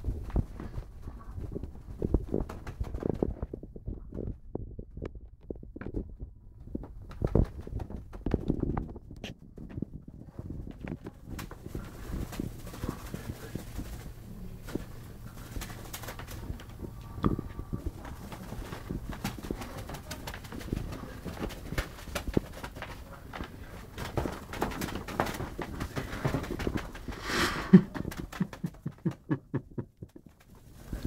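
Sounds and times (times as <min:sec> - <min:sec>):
cats scratching a mattress: 0:06.7 - 0:31.0.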